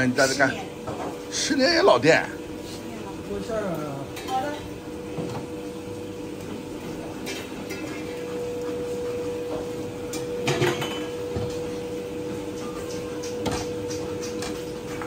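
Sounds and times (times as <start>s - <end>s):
steady hum: 0.0s - 15.0s
ceramic bowls and utensils clinking: 7.2s - 8.6s, 9.5s - 11.6s.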